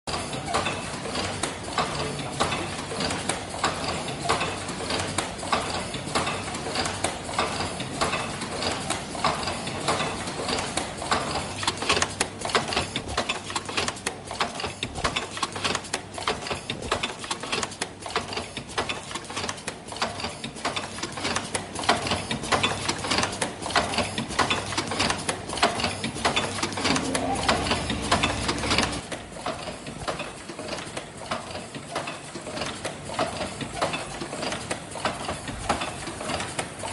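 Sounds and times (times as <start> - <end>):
production machine clattering: 0.1 - 36.9
steady hum: 26.3 - 29.0.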